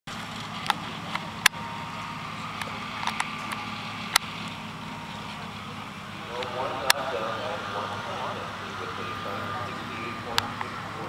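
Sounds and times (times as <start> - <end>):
low motor hum: 0.1 - 11.0
sharp clicks: 2.6 - 4.6.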